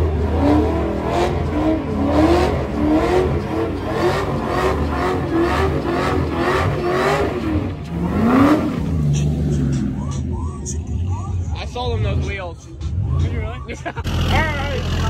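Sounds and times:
car engine revving high: 0:00.0 - 0:11.2.

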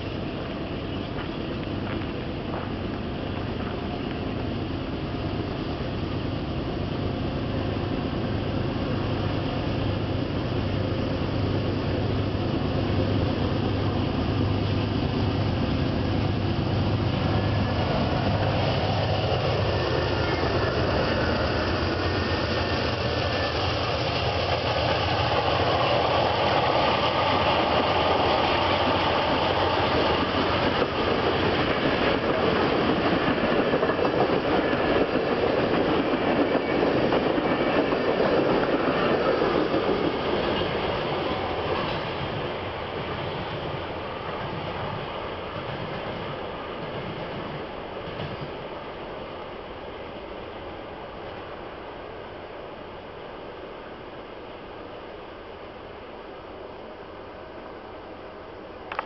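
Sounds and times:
diesel locomotive engine hum: 0:00.0 - 0:59.0
train wheels rumbling on rails: 0:00.0 - 0:59.0.

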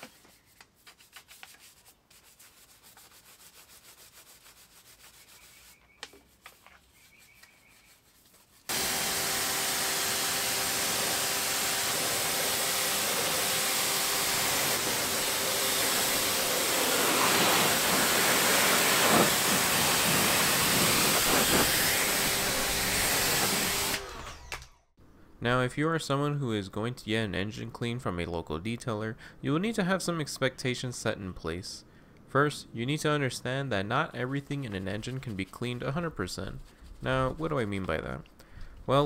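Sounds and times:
brush scrubbing plastic: 0:00.0 - 0:08.7, 0:11.9 - 0:23.9, 0:34.2 - 0:38.1
pressure washer spraying water: 0:08.7 - 0:24.1.

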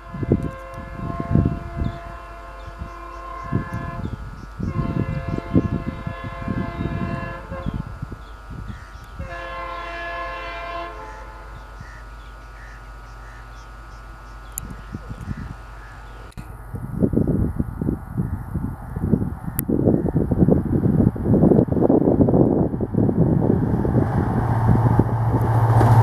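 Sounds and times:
locomotive horn blasts: 0:00.0 - 0:08.0, 0:09.2 - 0:12.1
low train rumble: 0:00.0 - 0:26.0.

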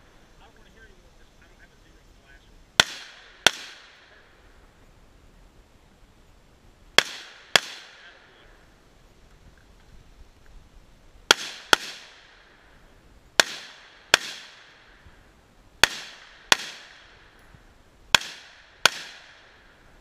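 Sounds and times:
rifle shots with echo: 0:02.8 - 0:04.4, 0:06.9 - 0:08.6, 0:11.3 - 0:12.8, 0:13.4 - 0:15.1, 0:15.8 - 0:19.9.

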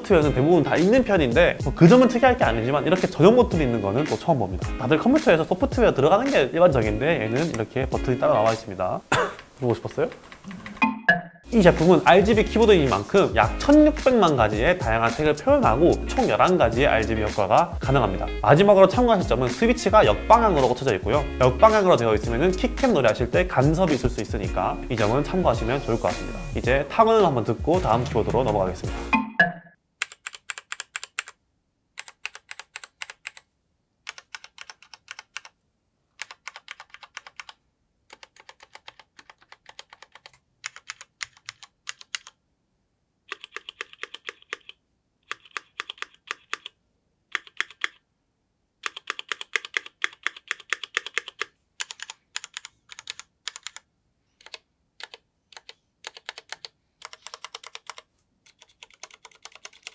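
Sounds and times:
typing on mechanical keyboard: 0:30.0 - 0:31.4, 0:32.0 - 0:35.6, 0:36.2 - 0:42.4, 0:43.3 - 0:48.0, 0:48.8 - 0:59.9.

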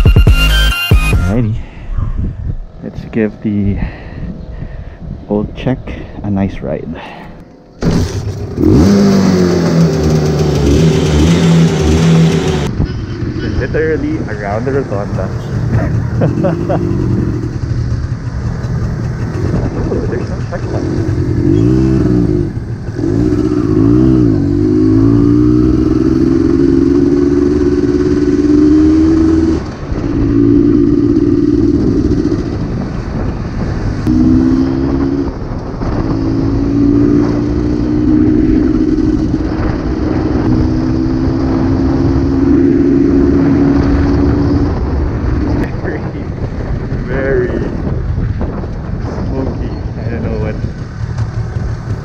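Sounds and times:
two-stroke motorcycle engine revving: 0:07.8 - 0:45.7.

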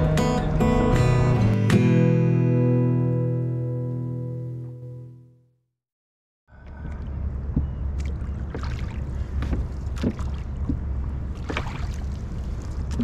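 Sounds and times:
steady low rumble: 0:06.5 - 0:13.0
oars knocking in oarlocks: 0:07.5 - 0:11.8
oar blades splashing: 0:08.0 - 0:13.0.

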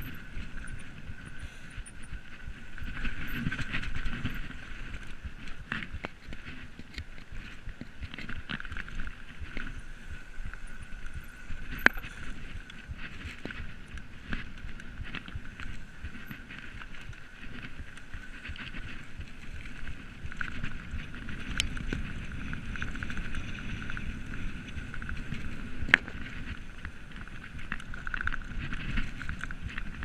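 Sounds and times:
bike rattling over bumps: 0:00.0 - 0:30.0
bike tyres rolling on dirt: 0:00.0 - 0:30.0
wind on microphone: 0:00.0 - 0:30.0.

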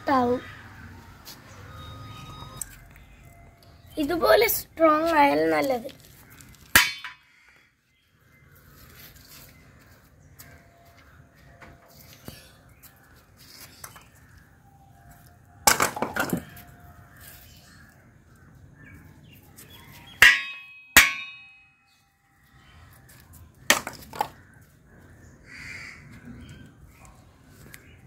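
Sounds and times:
coconut cracking on concrete: 0:23.7 - 0:24.4.

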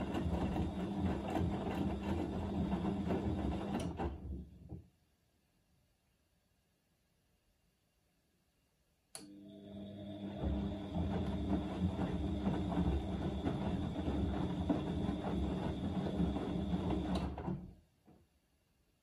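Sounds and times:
washing machine motor whine: 0:00.0 - 0:04.3, 0:09.2 - 0:17.7.

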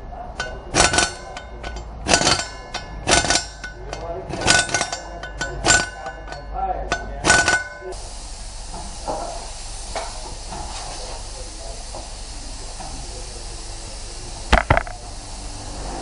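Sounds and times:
workshop background hiss: 0:00.0 - 0:16.0
sharp knocks: 0:14.5 - 0:15.0.

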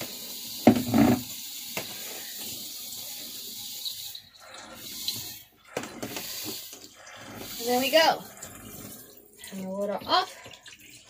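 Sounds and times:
shower head spraying water: 0:00.0 - 0:04.2, 0:04.8 - 0:08.3.

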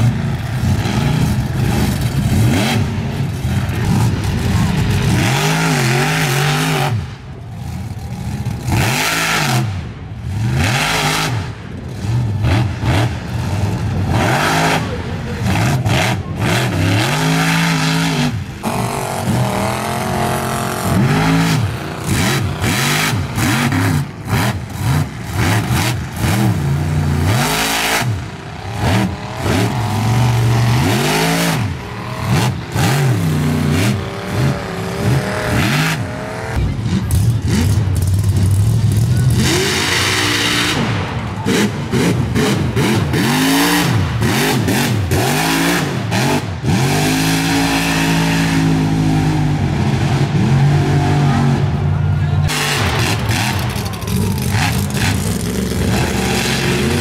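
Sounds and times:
truck engines revving hard: 0:00.0 - 0:57.0.

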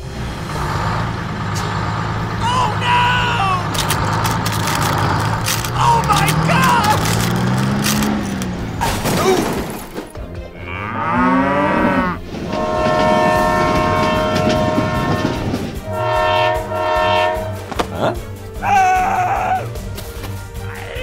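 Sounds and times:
cow mooing: 0:10.5 - 0:18.2
train horn blast: 0:10.6 - 0:18.2.

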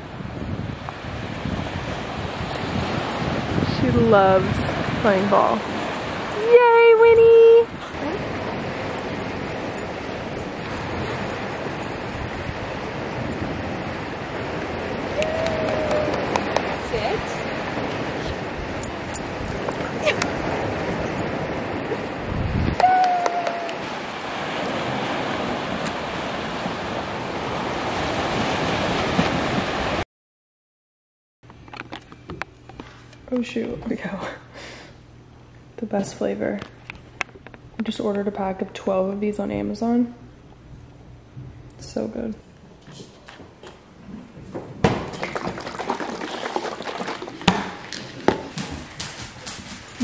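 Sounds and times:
ocean surf on sandy beach: 0:00.0 - 0:30.0
wind on microphone: 0:00.0 - 0:30.0
liquid sloshing in bottle: 0:44.9 - 0:48.5.

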